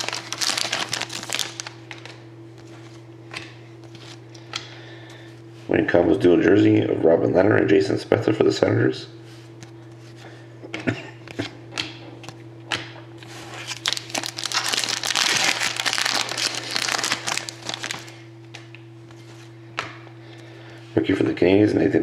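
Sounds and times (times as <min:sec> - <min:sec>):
wrapper crinkling and tearing: 0:00.0 - 0:02.2, 0:13.5 - 0:18.2
steady low hum: 0:00.0 - 0:22.0.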